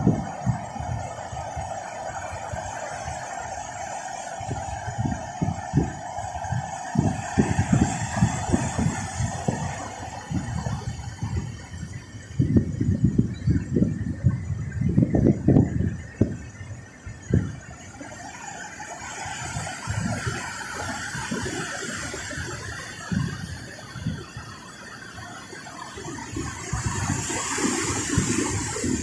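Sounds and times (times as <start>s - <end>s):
gusty low rumbles: 0.0s - 3.6s, 4.4s - 18.0s.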